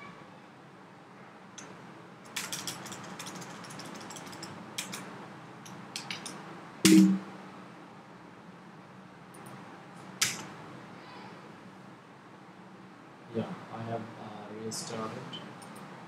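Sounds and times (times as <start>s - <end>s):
keyboard keys clicking: 2.3s - 5.0s, 5.6s - 7.2s
loud knock: 6.9s - 7.3s.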